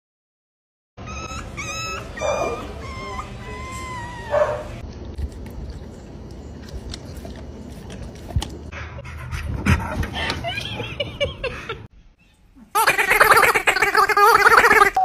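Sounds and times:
puppy yelping and howling: 0:01.0 - 0:04.8
dog chewing wetly: 0:04.4 - 0:08.7.

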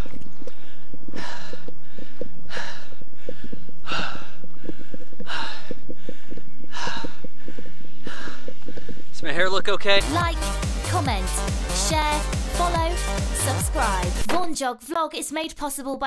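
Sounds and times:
heavy breathing: 0:00.0 - 0:09.2.

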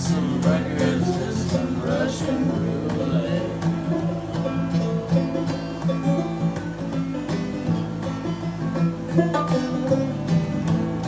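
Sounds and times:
acoustic guitar strumming: 0:00.0 - 0:11.0
banjo picking: 0:00.0 - 0:11.0.

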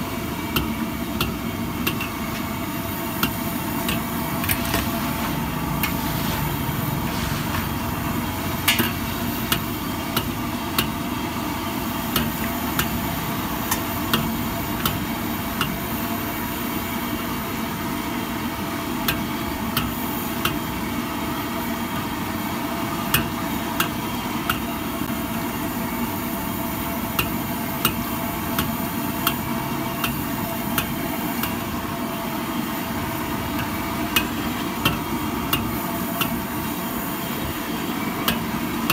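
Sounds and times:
oil frying hiss: 0:00.0 - 0:38.9
ladle scraping a wok: 0:04.4 - 0:08.0.

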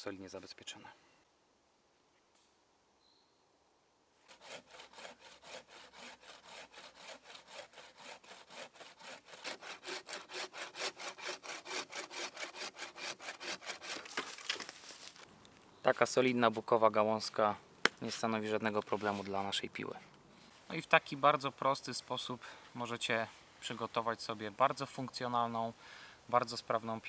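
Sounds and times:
bow saw cutting a branch: 0:04.2 - 0:15.2.

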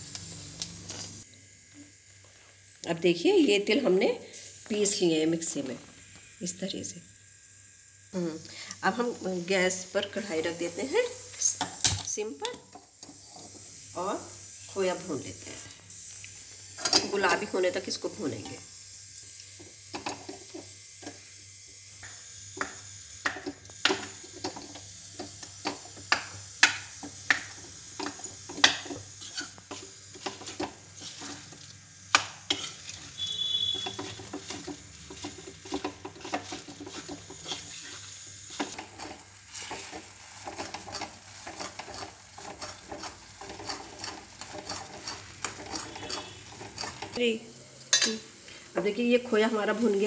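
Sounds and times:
soft sizzle: 0:00.0 - 0:50.0
metal spoon scraping a pan: 0:22.6 - 0:47.2.

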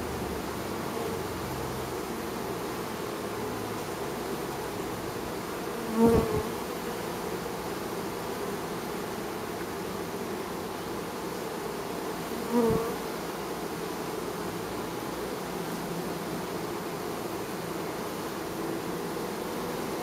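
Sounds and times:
bees humming at hive: 0:00.0 - 0:20.0
single bee buzzing past: 0:00.1 - 0:20.0.

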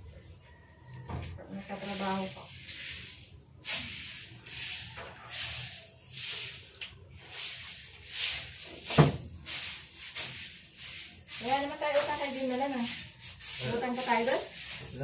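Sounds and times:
knock: 0:08.9 - 0:09.2
cloth rubbing against microphone: 0:11.4 - 0:15.0.

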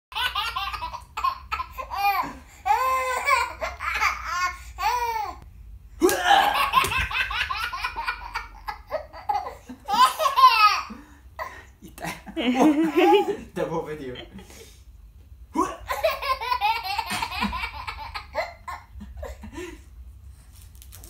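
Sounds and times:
baby laughing: 0:00.1 - 0:05.4, 0:06.0 - 0:11.0, 0:12.6 - 0:13.4, 0:15.7 - 0:19.4.

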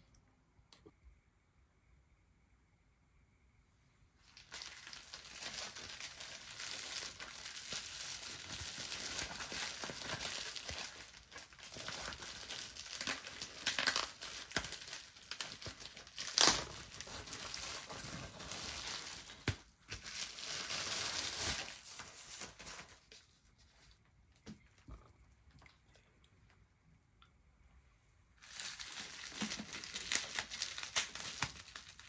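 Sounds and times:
bubble wrap crinkling: 0:04.2 - 0:24.0, 0:28.4 - 0:32.0.

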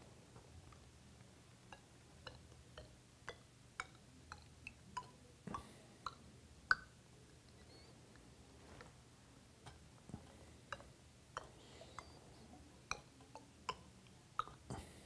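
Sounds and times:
water dripping into glass tubes: 0:01.6 - 0:07.6, 0:09.7 - 0:15.0.

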